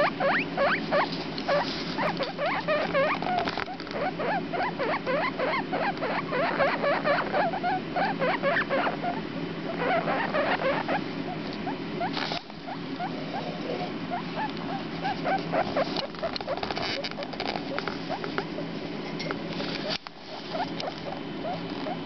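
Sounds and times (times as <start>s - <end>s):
guinea pig pups squeaking: 0.0s - 18.6s, 19.8s - 22.0s
steady low hum: 0.0s - 22.0s
rustle: 1.0s - 3.6s, 12.1s - 12.6s.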